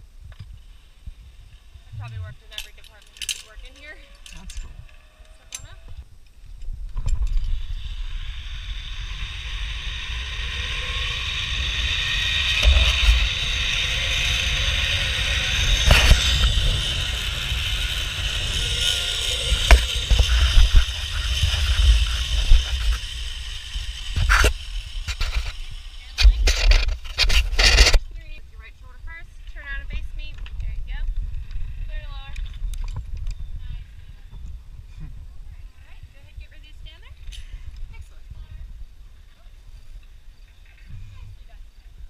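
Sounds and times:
wind buffeting microphone: 0:00.0 - 0:39.3
pulleys whirring along cable: 0:07.1 - 0:28.0.

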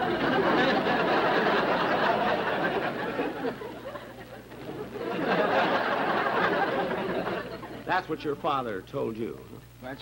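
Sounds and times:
studio audience laughing: 0:00.0 - 0:07.9.

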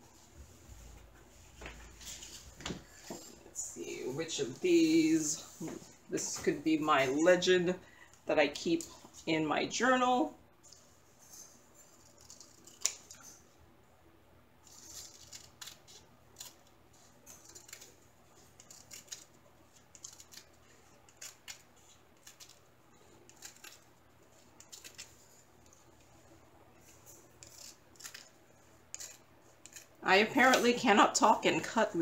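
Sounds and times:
scissors snipping: 0:12.0 - 0:13.2, 0:17.3 - 0:22.6.

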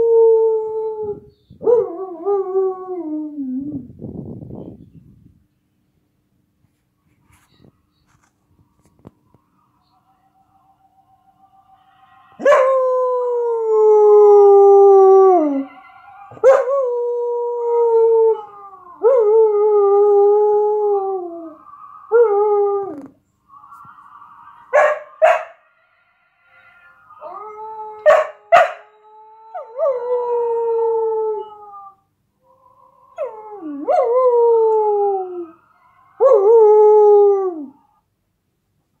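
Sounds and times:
dog howling: 0:12.4 - 0:23.1.

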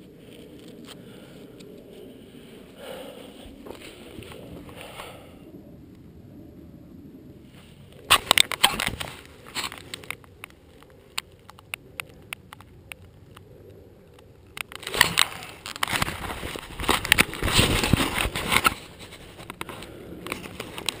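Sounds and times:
camera housing rubbing and knocks: 0:08.1 - 0:10.2, 0:14.8 - 0:21.0
faint clicks: 0:09.6 - 0:16.1.

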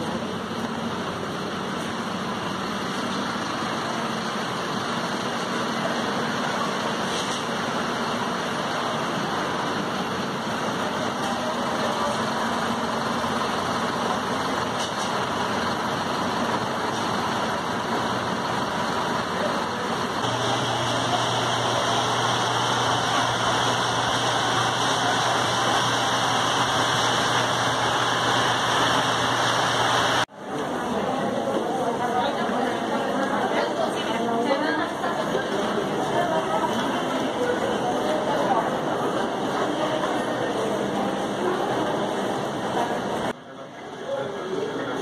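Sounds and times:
bus and car engines humming: 0:00.0 - 0:30.8
city street traffic: 0:00.0 - 0:45.0.

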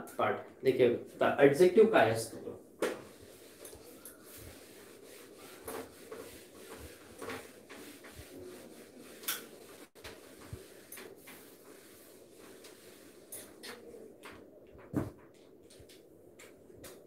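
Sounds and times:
eraser rubbing on whiteboard: 0:03.0 - 0:13.9.

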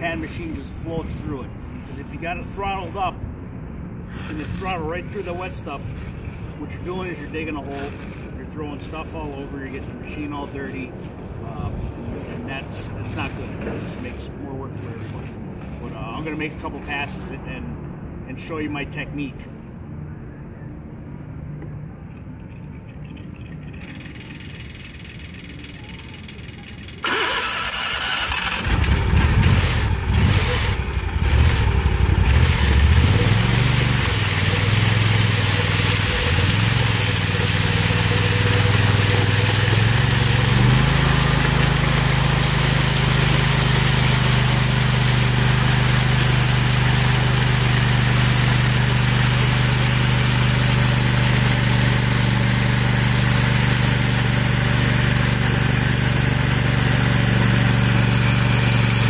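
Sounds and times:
power trowel engine running: 0:04.1 - 0:11.6, 0:22.8 - 0:59.0.

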